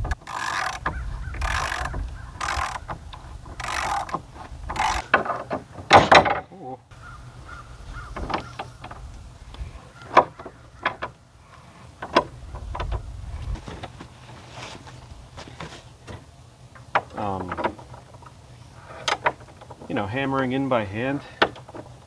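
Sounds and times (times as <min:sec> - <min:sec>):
low steady rumble: 0:00.0 - 0:05.8, 0:06.4 - 0:21.3.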